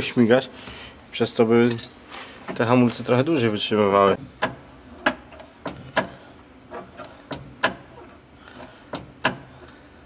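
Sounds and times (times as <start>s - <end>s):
sharp mechanical clicks and knocks: 4.4s - 9.8s.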